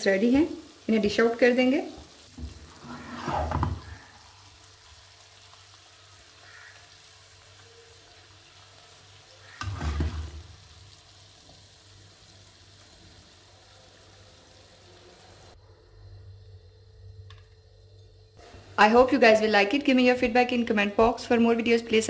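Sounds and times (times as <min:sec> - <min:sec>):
faint steady hiss: 0:00.0 - 0:22.0
spatula scraping a wok: 0:02.4 - 0:04.1.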